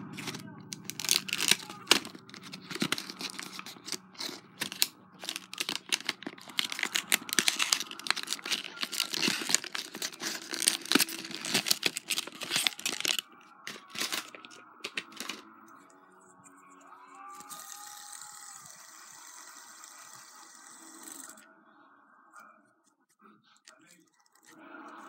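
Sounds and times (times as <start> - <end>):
packaging crinkling and tearing: 0.0 - 15.5.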